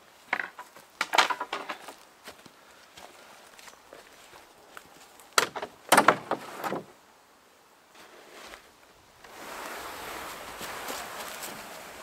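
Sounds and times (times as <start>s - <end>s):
rustling scrape: 9.3s - 12.0s.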